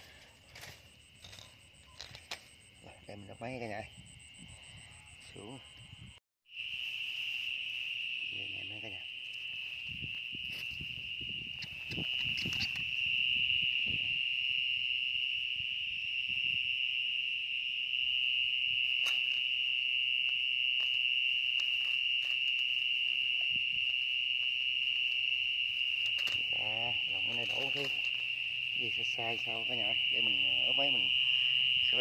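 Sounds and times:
grass rustling: 0:00.0 - 0:03.0, 0:06.6 - 0:14.6, 0:18.8 - 0:32.0
insect trill: 0:00.0 - 0:32.0.

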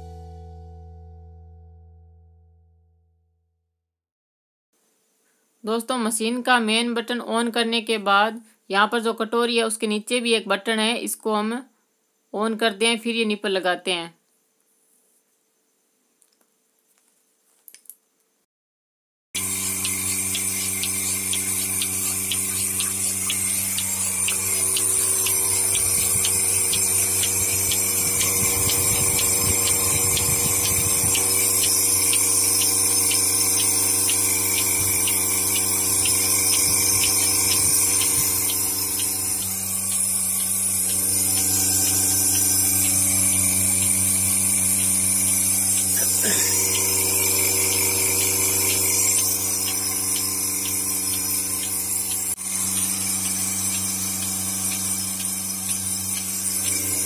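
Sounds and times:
milking machine motor humming: 0:19.4 - 0:57.0
pulsator ticking: 0:19.4 - 0:57.0.

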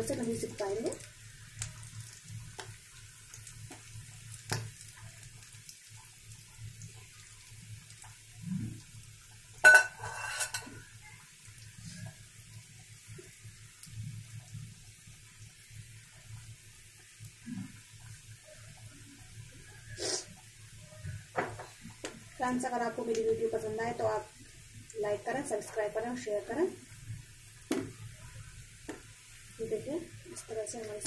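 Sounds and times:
oil sizzling and bubbling: 0:00.0 - 0:31.0
metal utensil clanking on pan: 0:09.6 - 0:10.8.

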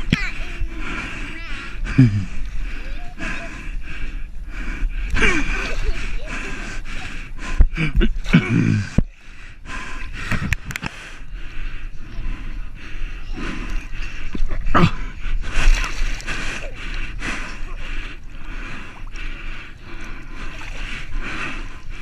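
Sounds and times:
water splashing: 0:10.1 - 0:22.0.

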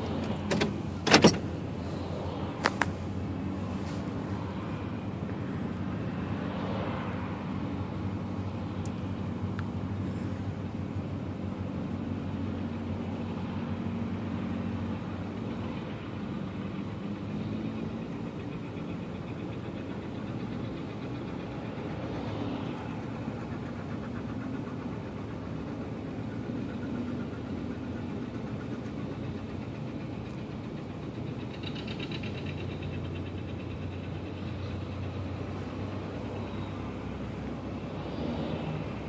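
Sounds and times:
tractor engines running: 0:00.0 - 0:39.0.

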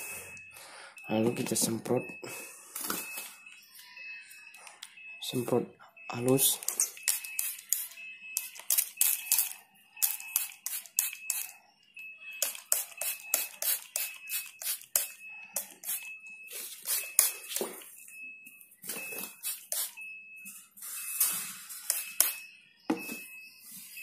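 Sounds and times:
spray bottle hissing squirts: 0:12.4 - 0:15.1, 0:15.8 - 0:17.8, 0:19.2 - 0:20.0.

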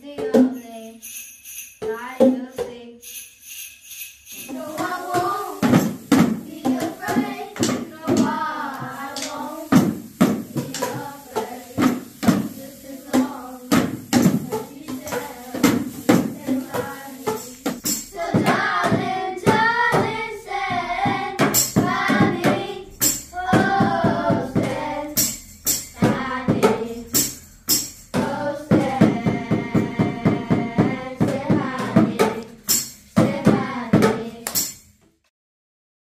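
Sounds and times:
boomwhackers playing a tune: 0:04.2 - 0:34.4
children singing: 0:04.4 - 0:25.3, 0:26.0 - 0:27.2, 0:28.2 - 0:32.6, 0:33.2 - 0:34.4
bongos and hand drums: 0:04.4 - 0:35.2.

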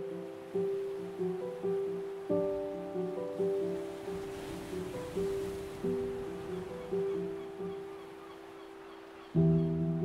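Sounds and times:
soft instrumental music: 0:00.0 - 0:10.0.

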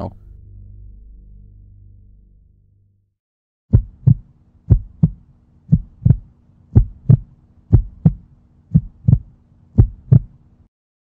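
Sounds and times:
heartbeat thumps: 0:03.7 - 0:10.4
faint low hum: 0:03.8 - 0:10.7.

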